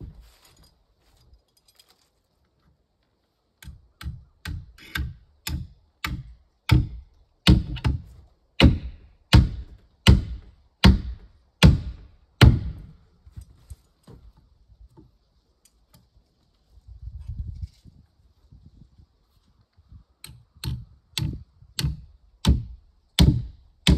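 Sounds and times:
heavy blows on wood: 5.4 - 13.0.

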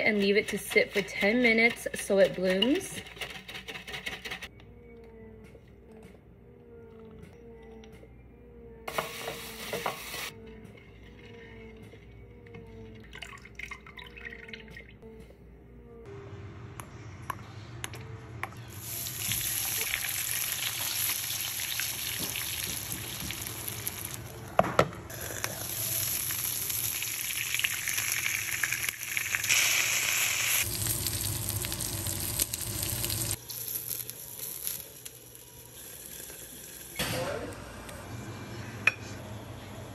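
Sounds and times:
spatula scraping glass bowl: 0.0 - 4.5
oil sizzling: 18.7 - 24.4, 25.1 - 37.0.

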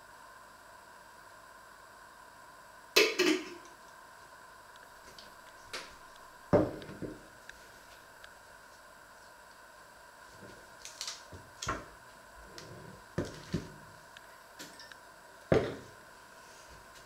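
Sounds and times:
containers knocking on wooden worktop: 6.6 - 7.2.

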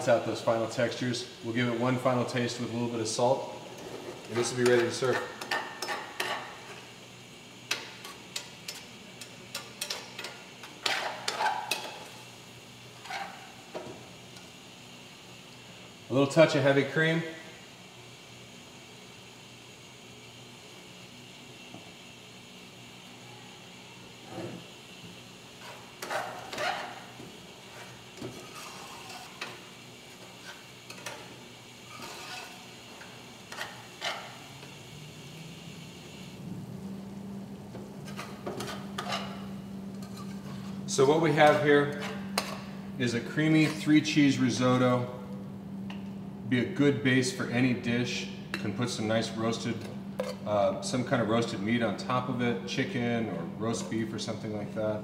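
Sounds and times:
steady background hum: 0.0 - 55.0
spoon scraping a metal pan: 9.8 - 12.0, 25.6 - 29.6, 30.4 - 34.4, 38.0 - 40.8, 41.4 - 42.7
spoon scraping and clinking on pan: 38.1 - 40.6.

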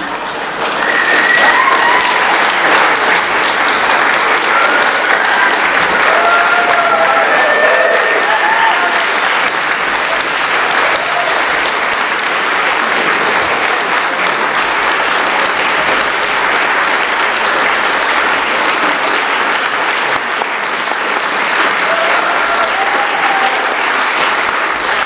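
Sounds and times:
crowd applause: 0.0 - 25.0.

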